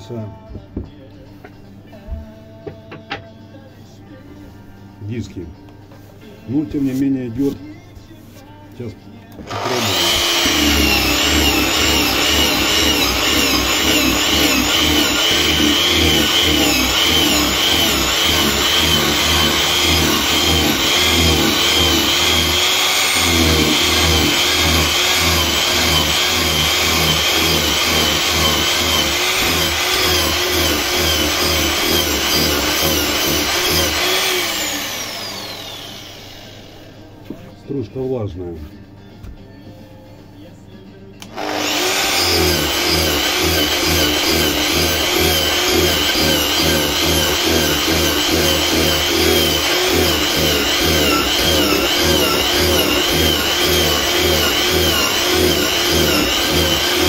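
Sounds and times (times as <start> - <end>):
angle grinder carving wood: 9.4 - 37.0, 41.2 - 57.0
grinder spinning down: 9.5 - 37.0, 41.3 - 57.0.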